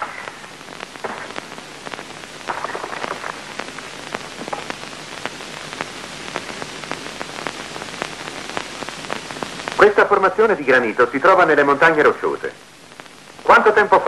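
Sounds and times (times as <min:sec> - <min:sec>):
irregular clicks and pops: 0:00.0 - 0:09.8
film soundtrack hiss: 0:00.0 - 0:14.0.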